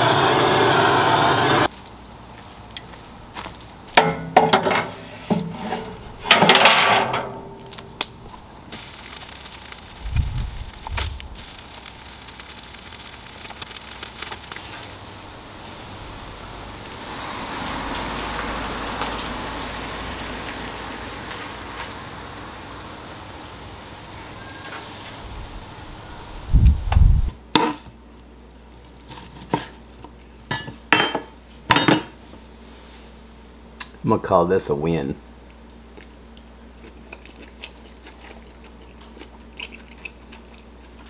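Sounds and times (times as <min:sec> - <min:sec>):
meat sizzling: 0:00.0 - 0:01.7, 0:02.9 - 0:26.0.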